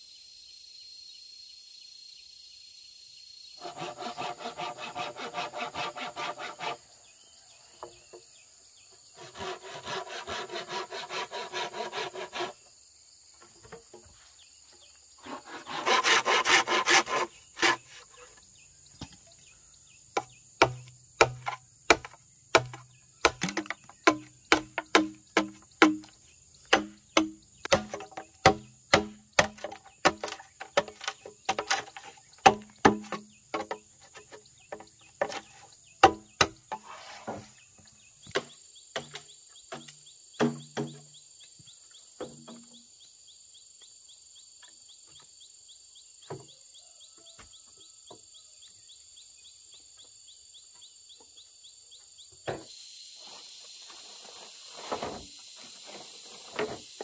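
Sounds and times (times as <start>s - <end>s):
insects buzzing: 0.0s - 57.0s
machete chopping bamboo: 15.7s - 17.8s, 20.2s - 36.9s, 38.3s - 41.0s.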